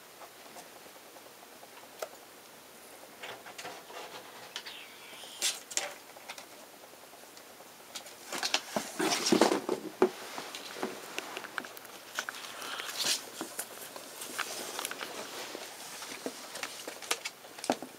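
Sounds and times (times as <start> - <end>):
rustling and scrabbling: 7.9 - 17.8
ferrets scurrying and scuffling: 7.9 - 17.9.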